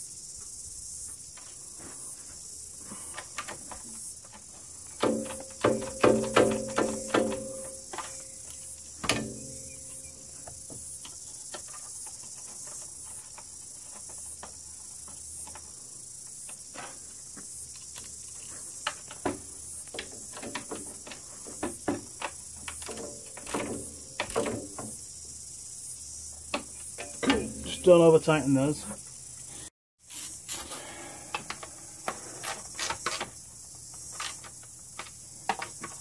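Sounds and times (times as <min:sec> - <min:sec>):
tool knocking against metal: 0:05.0 - 0:07.9.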